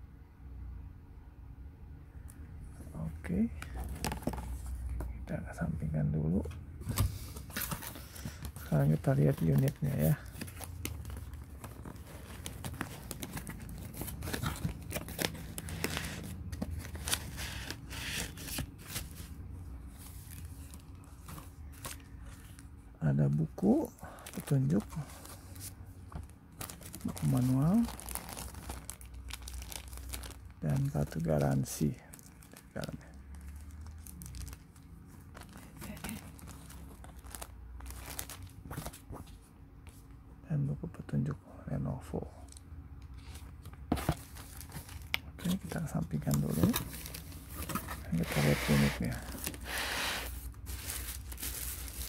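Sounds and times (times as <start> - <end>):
cardboard and foam packing handled: 3.6 - 5.2, 6.8 - 22.8, 24.2 - 32.8, 33.4 - 40.0, 43.2 - 52.0
plastic sleeve crinkling: 7.6 - 19.2, 26.5 - 38.5, 44.1 - 52.0
plastic bag crinkling: 26.5 - 31.3, 32.1 - 38.5, 50.6 - 52.0.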